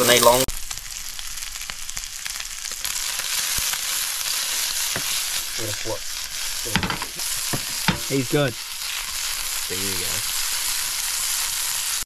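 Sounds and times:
meat sizzling in oil: 0.0 - 12.0.

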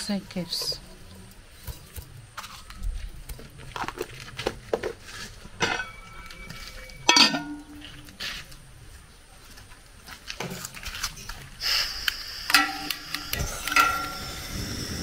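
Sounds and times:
metal pots knocking together: 5.6 - 6.3, 7.0 - 8.0, 12.6 - 14.2
metal clang ringing: 5.6 - 8.0, 12.5 - 14.4.

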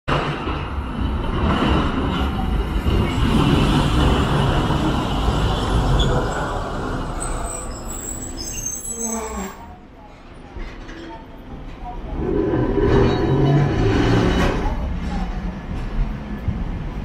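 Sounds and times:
tram wheels rumbling: 0.1 - 17.0
thin high squealing: 7.2 - 9.7.

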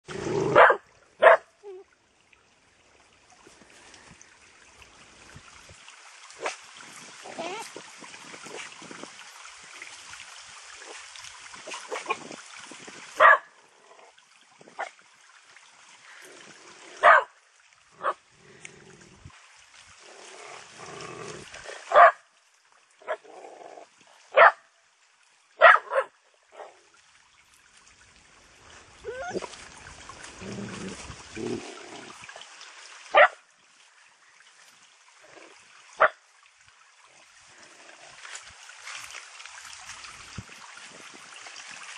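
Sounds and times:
trickling brook: 0.0 - 41.9
dogs barking: 0.5 - 1.5, 13.2 - 13.5, 17.0 - 17.3, 21.9 - 22.2, 24.4 - 24.6, 25.6 - 26.7.

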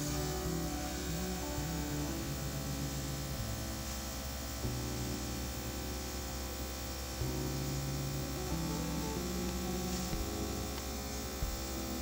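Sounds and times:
airbrush hiss: 0.0 - 12.0
compressor humming: 0.0 - 12.0.

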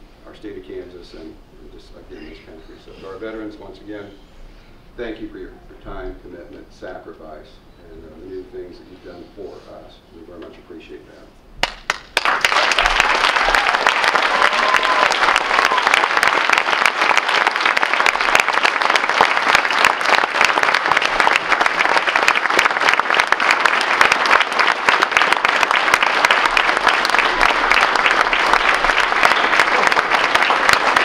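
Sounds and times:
crowd applauding: 11.6 - 31.0.

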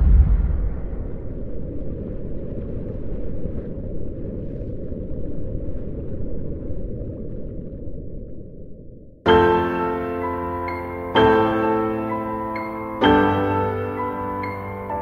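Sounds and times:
deep low rumble from boom: 0.0 - 9.2.

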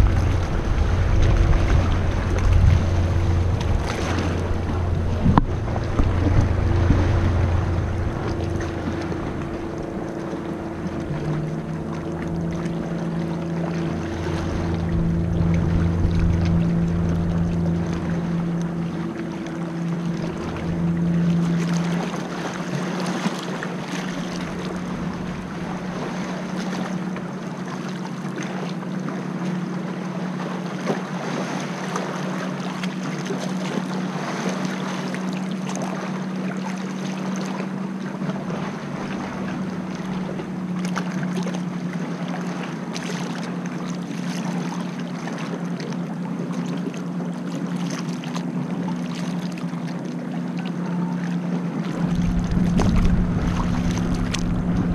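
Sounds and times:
wind on microphone: 0.0 - 23.2, 51.7 - 54.9
low steady hum: 0.0 - 30.6, 35.0 - 54.9
paddle splashing in water: 0.0 - 54.9
water lapping around boat: 0.0 - 54.9.

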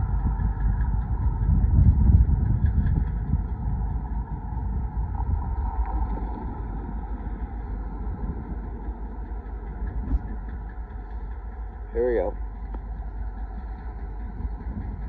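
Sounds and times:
low vehicle rumble: 0.0 - 15.0.

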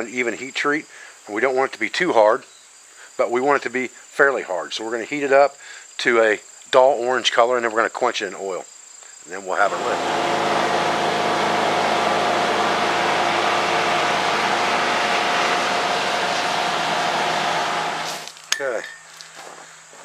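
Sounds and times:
forge blower running: 9.4 - 18.3.

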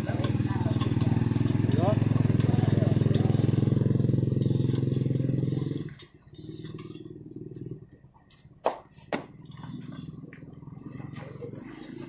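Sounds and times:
motorcycle engine idling: 0.0 - 8.3.

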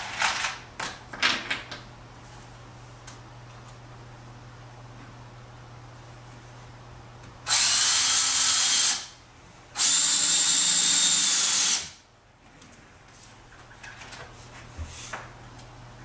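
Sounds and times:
power drill running: 7.5 - 9.2, 9.8 - 12.0.

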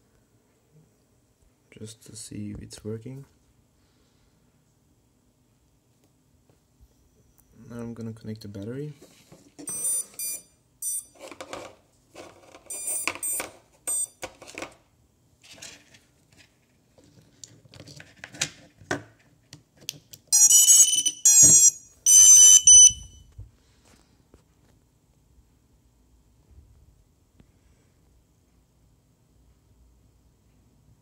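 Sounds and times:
high-pitched electronic beeps: 20.4 - 23.2.

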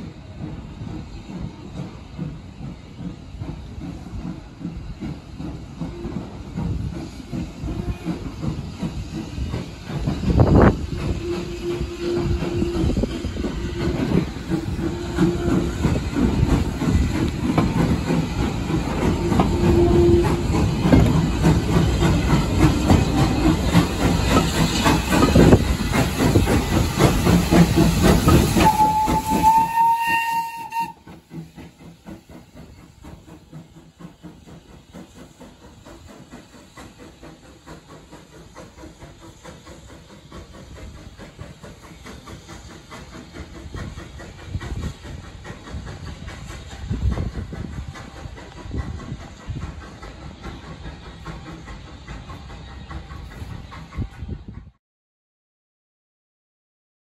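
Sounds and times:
rail noise: 0.0 - 54.8
steam hiss: 0.0 - 54.8
steam train passing: 0.0 - 54.8
steam whistle: 11.0 - 14.2, 14.8 - 16.1, 19.1 - 20.7, 27.8 - 31.2.

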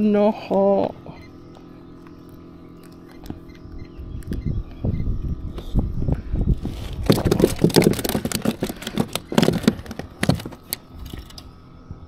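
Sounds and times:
rapid clicks and knocks: 7.0 - 10.8.

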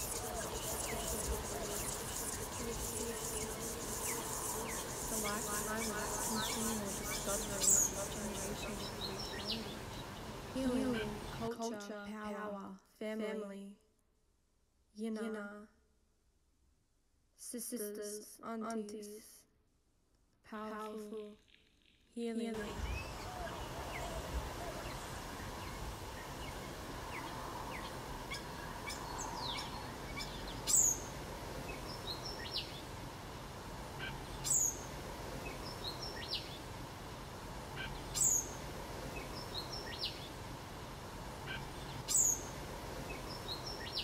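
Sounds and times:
small bird chirps: 0.0 - 10.3, 22.6 - 31.1, 34.0 - 36.6, 37.8 - 38.6, 41.5 - 44.0
high falling bird call: 0.0 - 11.4, 22.6 - 31.1, 37.8 - 38.6, 41.4 - 44.0
steady background hiss: 0.0 - 13.8, 16.8 - 44.0.

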